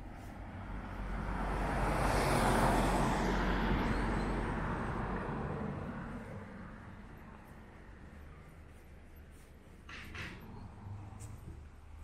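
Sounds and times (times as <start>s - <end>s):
car driving past: 0.5s - 8.6s.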